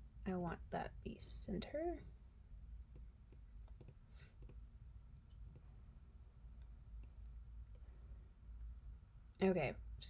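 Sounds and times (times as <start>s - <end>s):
faint computer mouse clicks: 2.9s - 4.6s.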